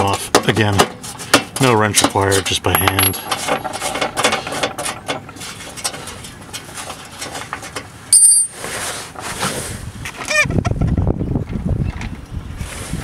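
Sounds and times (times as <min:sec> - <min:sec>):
high-pitched metal ringing: 0:08.1 - 0:08.5.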